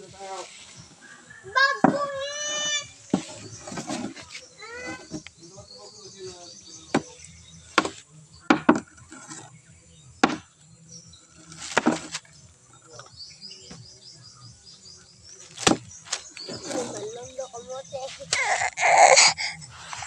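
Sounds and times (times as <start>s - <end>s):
insects chirping: 0.0s - 20.0s
dry sticks tapping and cracking: 15.3s - 16.6s.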